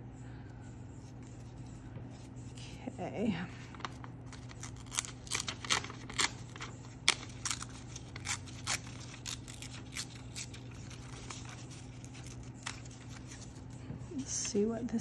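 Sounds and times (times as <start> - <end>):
paper page tearing: 3.9 - 13.6.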